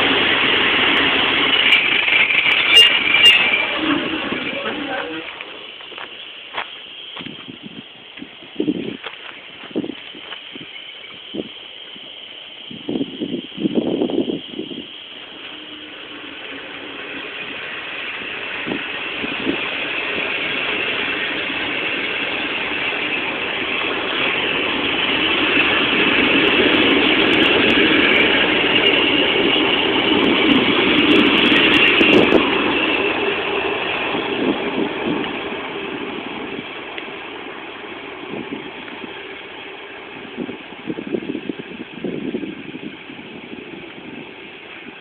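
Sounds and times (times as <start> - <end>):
train wheels rattling over track: 0.0 - 45.0.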